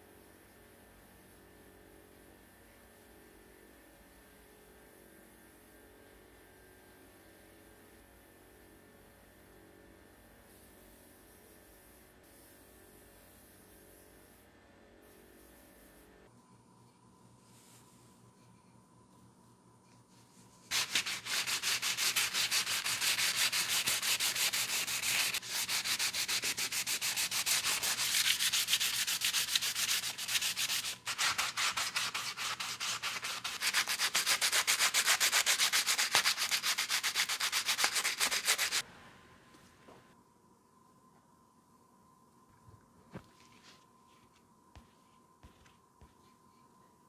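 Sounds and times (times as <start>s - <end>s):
hand sanding wood: 20.7s - 38.8s.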